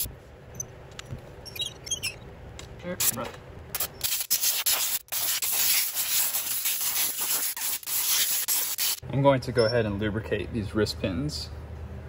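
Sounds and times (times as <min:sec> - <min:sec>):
aerosol spray hissing: 0:04.2 - 0:09.0.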